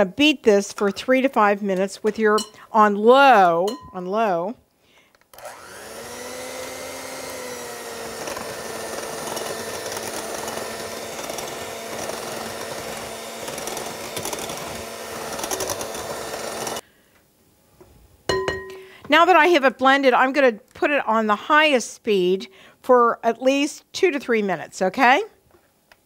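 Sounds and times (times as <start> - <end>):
electric hand mixer running: 5.4 - 16.8.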